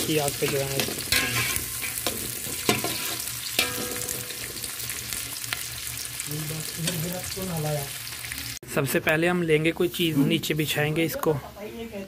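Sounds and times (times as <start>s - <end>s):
onions sizzling in oil: 0.0s - 8.6s.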